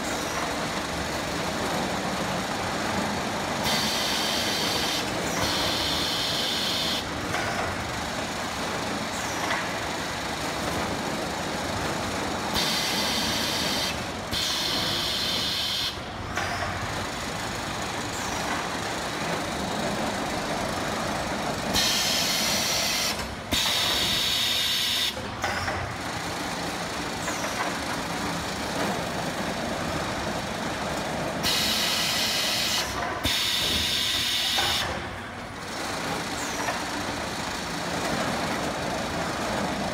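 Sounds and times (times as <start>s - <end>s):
conveyor machinery noise: 0.0s - 39.9s
pneumatic air hisses: 31.4s - 34.9s.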